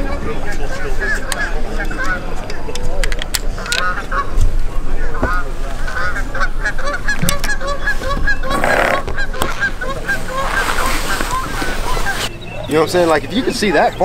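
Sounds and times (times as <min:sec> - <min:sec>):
geese honking: 0:03.6 - 0:04.4, 0:05.0 - 0:14.0
brief rustling: 0:07.2 - 0:12.4.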